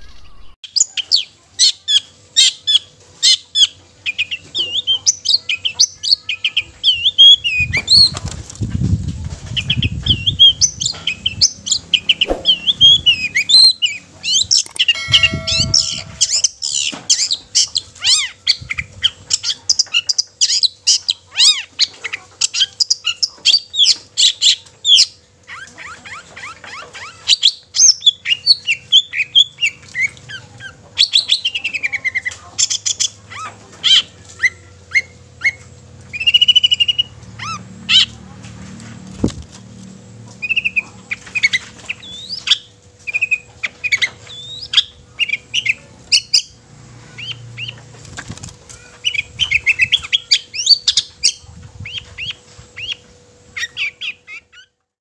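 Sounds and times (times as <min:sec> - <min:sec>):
low thumps: 0:12.2 - 0:13.1
shrike singing fast high notes: 0:14.9 - 0:16.6.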